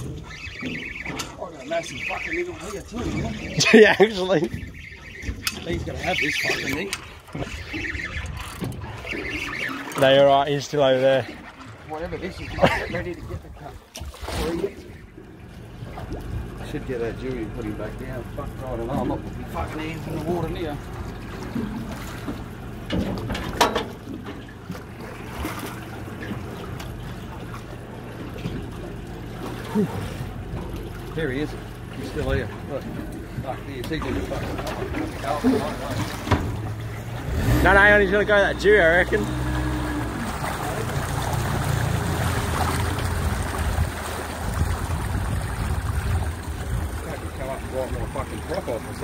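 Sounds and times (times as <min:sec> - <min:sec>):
wash of water: 0:00.0 - 0:22.6, 0:24.4 - 0:49.0
water lapping against a boat hull: 0:00.0 - 0:49.0
sharp splashes or knocks: 0:13.9 - 0:14.8, 0:33.8 - 0:37.6, 0:39.3 - 0:48.6
low rumble: 0:39.8 - 0:49.0
wind on microphone: 0:42.8 - 0:48.2.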